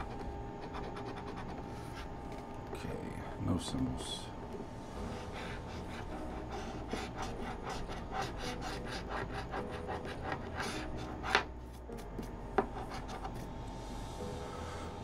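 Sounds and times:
coin scratching a ticket: 0.0s - 2.0s, 5.1s - 11.4s.

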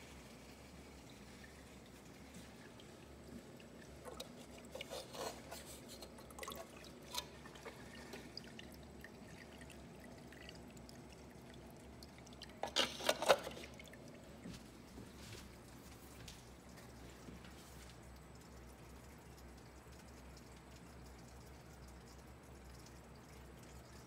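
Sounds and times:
low steady hum: 0.0s - 24.0s
water trickling and splashing: 0.0s - 24.0s.

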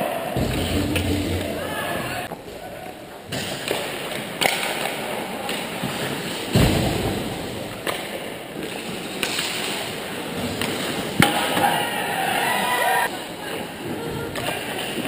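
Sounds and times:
heavy thud: 0.4s - 2.3s
hockey sticks clacking on puck: 3.3s - 6.4s, 7.8s - 11.8s.

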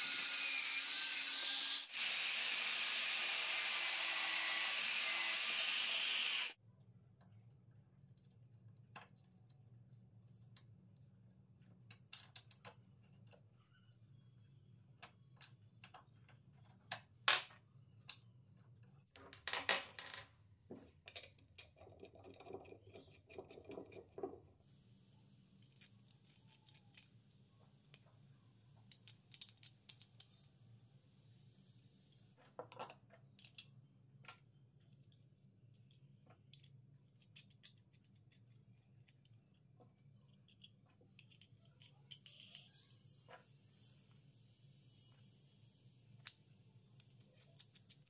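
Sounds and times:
drill press boring into plywood: 0.0s - 6.5s
small metallic clicks and taps: 28.8s - 30.6s, 40.3s - 43.1s, 47.0s - 48.0s.

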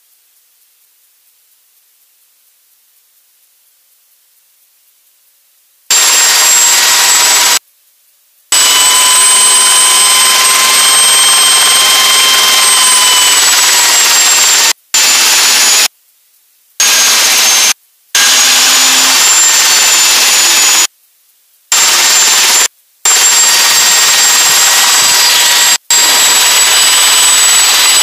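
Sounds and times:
turbine engine whine: 5.9s - 7.6s, 8.5s - 15.9s, 16.8s - 20.9s, 21.7s - 28.0s.

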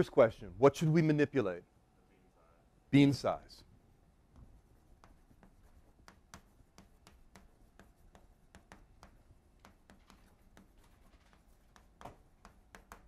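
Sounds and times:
chalk writing on a blackboard: 3.8s - 13.0s.

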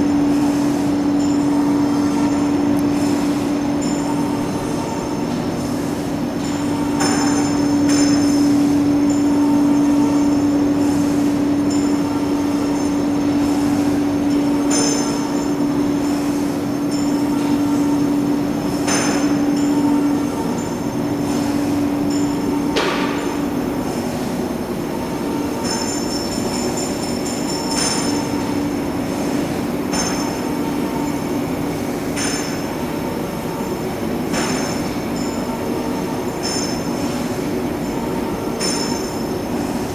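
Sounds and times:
steady machine hum: 0.0s - 39.9s
sharp metal clanks: 6.4s - 10.5s, 22.1s - 23.4s, 29.9s - 31.3s, 32.1s - 32.8s, 37.9s - 39.4s.

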